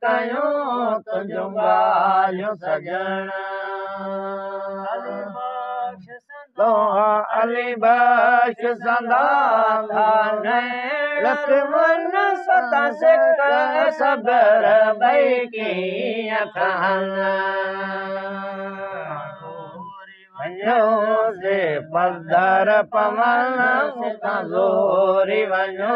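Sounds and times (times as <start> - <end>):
lead voice singing ornamented phrases: 0.0 - 25.9
men chanting devotional song: 0.0 - 25.9.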